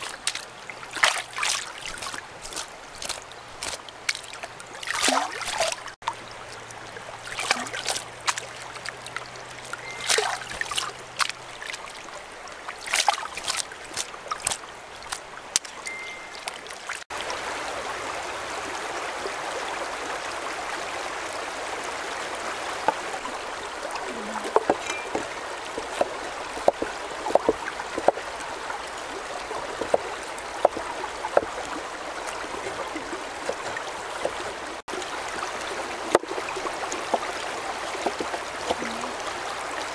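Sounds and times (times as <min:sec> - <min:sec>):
water splashing off a basket: 0:00.0 - 0:06.0, 0:07.1 - 0:12.0, 0:12.7 - 0:17.0, 0:24.0 - 0:39.9
running stream water: 0:00.0 - 0:39.9
cleaver chopping on wooden board: 0:24.5 - 0:28.2.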